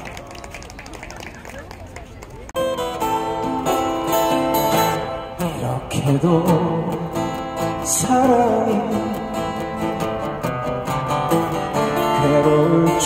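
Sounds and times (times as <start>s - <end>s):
acoustic guitars strumming: 2.6s - 13.0s
man singing: 4.8s - 10.1s, 11.8s - 13.0s.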